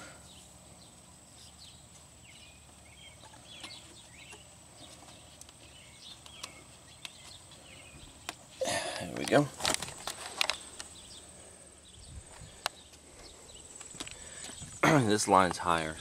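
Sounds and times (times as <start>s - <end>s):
bird chirps: 0.0s - 9.2s.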